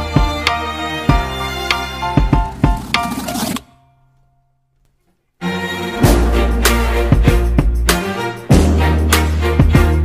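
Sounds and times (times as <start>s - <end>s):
held instrumental chords: 5.4s - 10.0s
drum hits: 6.0s - 10.0s.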